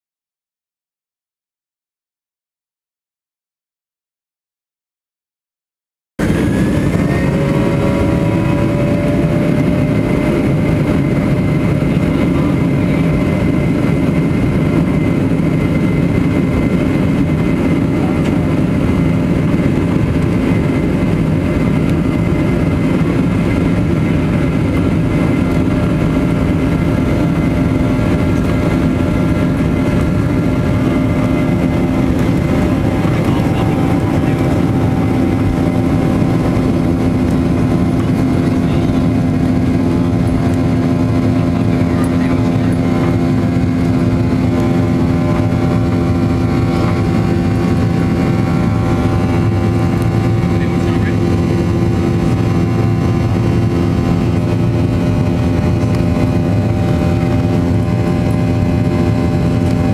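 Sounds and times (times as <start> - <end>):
jet engine roar with whining: 6.2 - 59.9.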